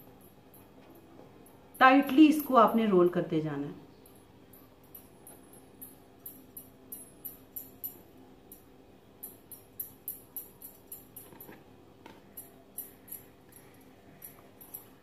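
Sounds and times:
bangles jingling: 3.9 - 11.6, 12.3 - 15.0.

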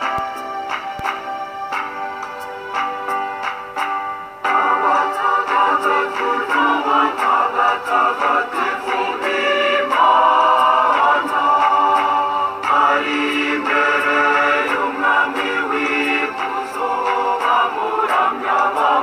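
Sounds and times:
light regular beat: 0.0 - 19.0
choir singing: 4.5 - 19.0.

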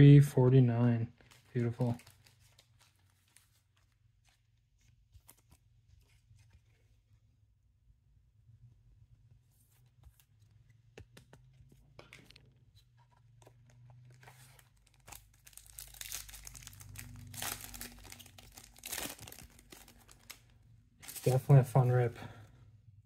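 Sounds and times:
foil wrapper crinkling and tearing: 1.2 - 3.9, 14.1 - 21.7
light clicks and taps of cards: 10.9 - 12.4.

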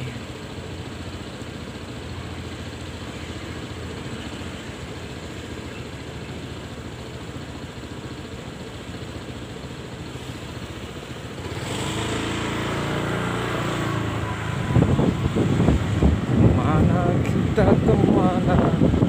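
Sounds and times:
motor scooter engine idling: 0.0 - 19.0.

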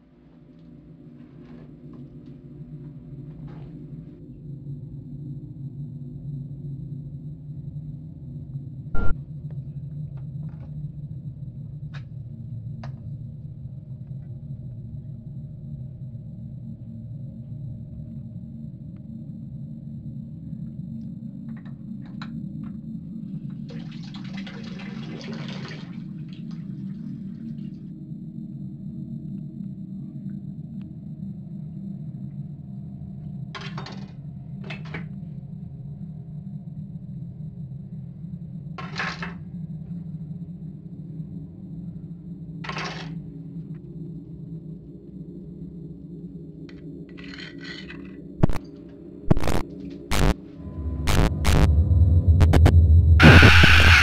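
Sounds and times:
steady low hum: 0.0 - 23.7, 26.4 - 38.8, 48.4 - 54.0.

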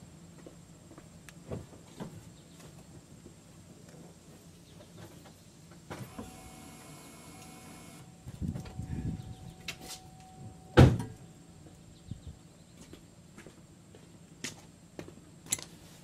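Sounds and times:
steady mechanical whine: 3.6 - 12.6.

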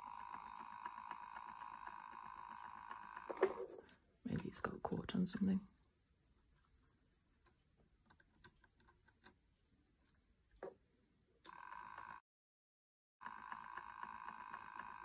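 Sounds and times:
hands clicking on spinning wheel: 0.0 - 3.7, 13.2 - 15.0
electric motor whine: 0.0 - 3.8, 11.5 - 12.2, 13.2 - 15.0.

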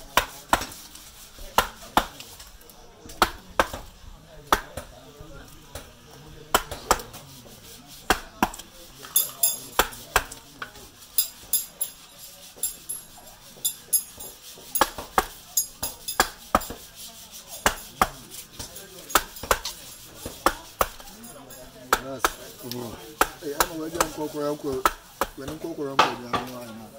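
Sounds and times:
wooden mallet striking chisel: 6.5 - 7.2, 8.0 - 26.6.

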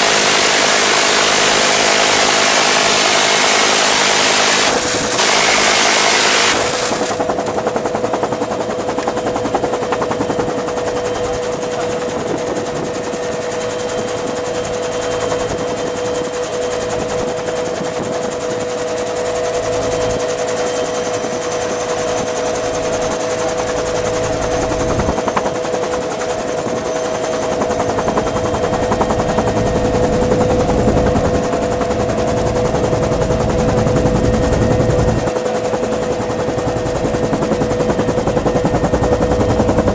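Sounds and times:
minigun firing buzzing burst: 0.0 - 7.9
helicopter rotor and turbine: 0.0 - 39.9.

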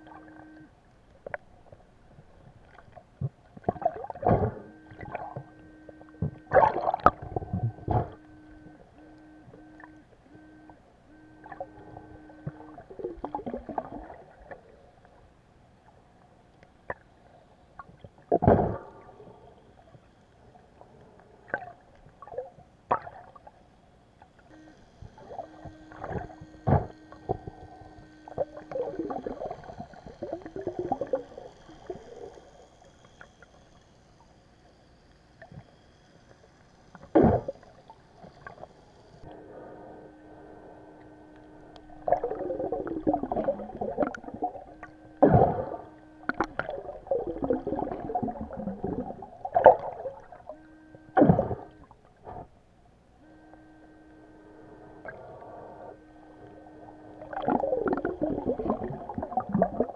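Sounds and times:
metal detector buzzing tone: 0.0 - 0.8, 3.6 - 14.8, 24.5 - 33.7, 37.0 - 52.5, 53.1 - 59.9
gurgling water: 0.0 - 15.2, 16.8 - 20.0, 20.6 - 23.6, 24.2 - 33.7, 36.9 - 39.4, 40.9 - 52.6, 54.8 - 59.9
muffled underwater thuds: 3.2 - 5.5, 6.2 - 8.2, 26.0 - 27.5.

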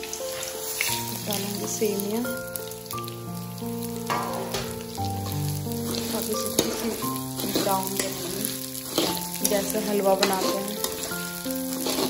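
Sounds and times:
vermicelli sizzling in hot fat: 0.0 - 12.0
metal spatula scraping a pan: 4.1 - 12.0.

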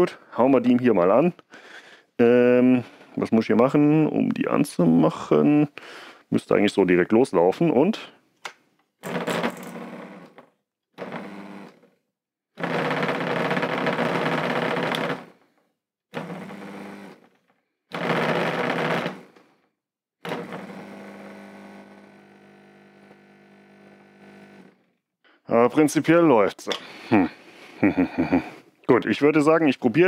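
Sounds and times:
drain pump buzzing hum: 11.0 - 11.8, 16.1 - 17.2, 20.2 - 24.8.

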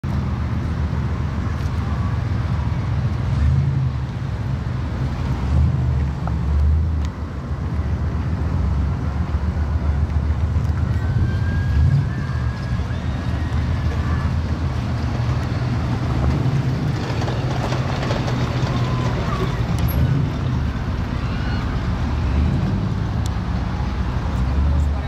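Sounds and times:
car engine idling: 6.1 - 25.0.

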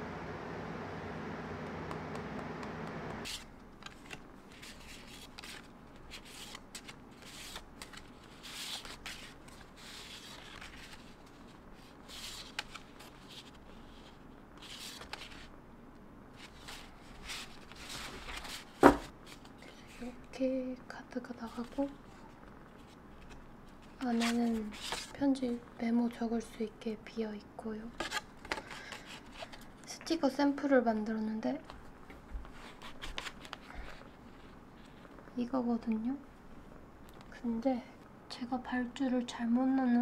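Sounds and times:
low hum: 0.0 - 3.3
paper cards rustling: 3.2 - 15.5, 16.4 - 20.2, 32.4 - 35.2.

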